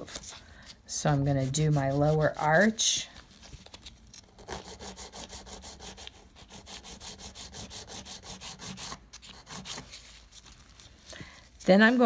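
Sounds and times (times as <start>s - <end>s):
nail file rasping: 4.4s - 9.8s.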